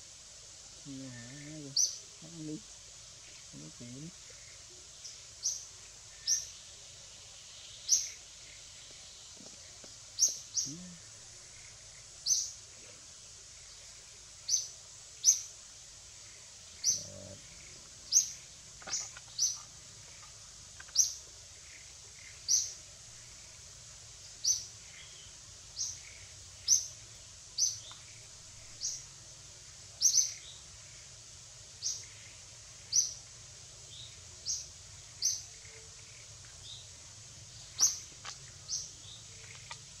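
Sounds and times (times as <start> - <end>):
faint steady hiss: 0.0 - 40.0
bird chirping: 3.2 - 12.6, 16.3 - 23.5, 30.0 - 30.6, 33.9 - 40.0.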